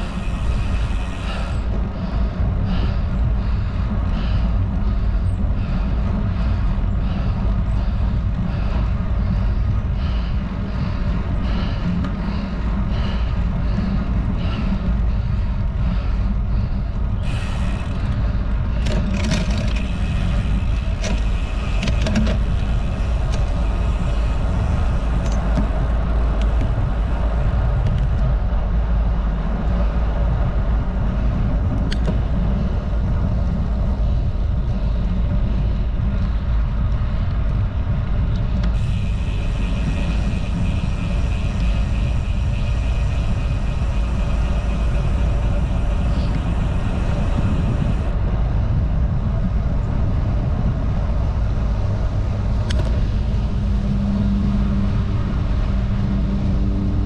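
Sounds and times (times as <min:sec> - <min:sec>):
tyres humming on asphalt: 0:00.0 - 0:57.0
wind buffeting microphone: 0:00.0 - 0:57.0.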